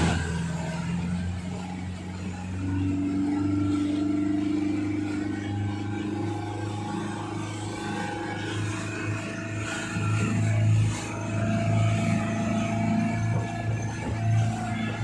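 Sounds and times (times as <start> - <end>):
motorboat engine running: 0.0 - 15.0
water rushing and splashing: 0.0 - 15.0.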